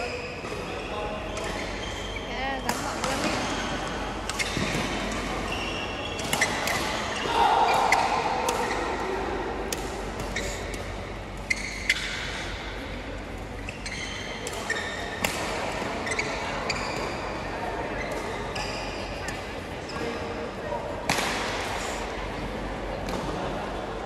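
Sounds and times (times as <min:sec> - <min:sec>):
sports shoes squeaking on floor: 0:00.0 - 0:08.9, 0:10.3 - 0:12.4, 0:13.6 - 0:15.2, 0:15.8 - 0:19.2
faint echoing voices: 0:00.0 - 0:24.0.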